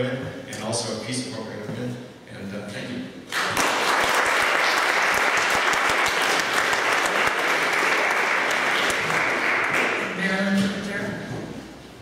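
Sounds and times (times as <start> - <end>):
audience applauding: 3.3 - 10.2.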